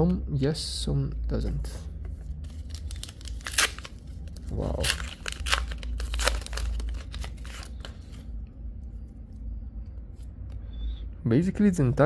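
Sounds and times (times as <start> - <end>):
packaging torn and crinkled: 2.4 - 8.1.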